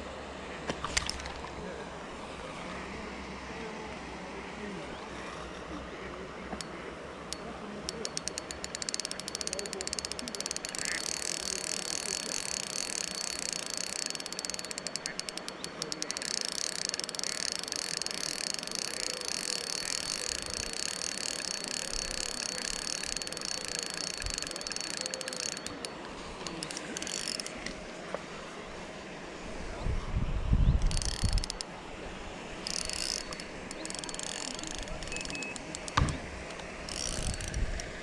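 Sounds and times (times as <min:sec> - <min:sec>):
fishing reel ticking whir: 0:00.7 - 0:01.7, 0:06.5 - 0:27.8, 0:30.7 - 0:31.8, 0:32.6 - 0:38.0.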